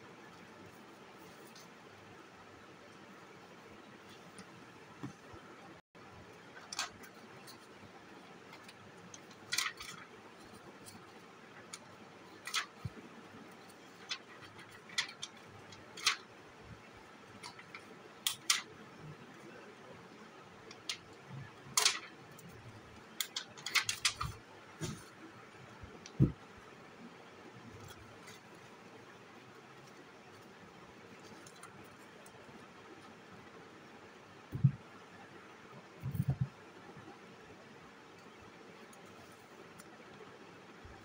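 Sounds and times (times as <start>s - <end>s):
paper rustling and tapping: 8.5s - 13.0s, 13.6s - 16.3s, 23.2s - 25.2s, 25.9s - 26.4s.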